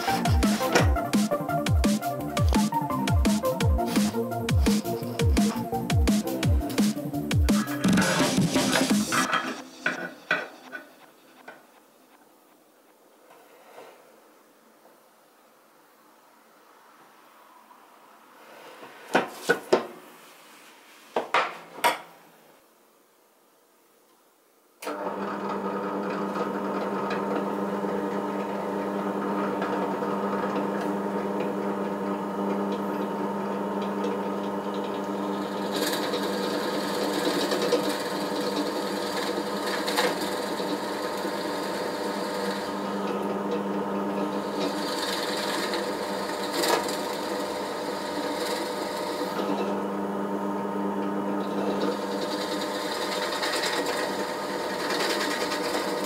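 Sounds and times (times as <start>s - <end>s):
drill press motor humming: 24.8s - 56.0s
drill bit cutting wood: 35.4s - 43.0s, 51.6s - 56.0s.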